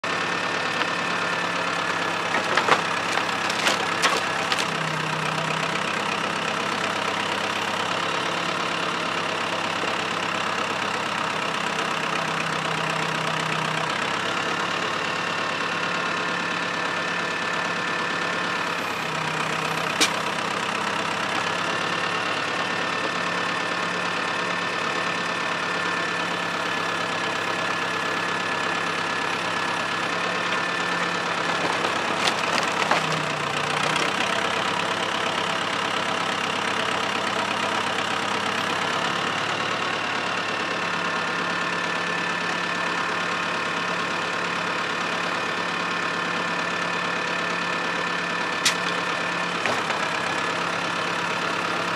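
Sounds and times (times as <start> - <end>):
diesel engine running: 0.0 - 51.9
clatter of knocks: 2.2 - 4.8, 31.4 - 34.2.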